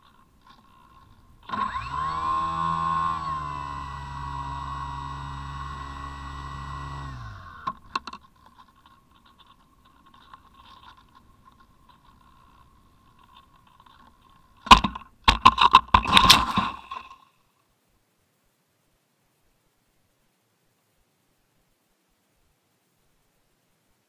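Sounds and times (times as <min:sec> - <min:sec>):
electric motor and propeller whine: 0:00.7 - 0:07.8.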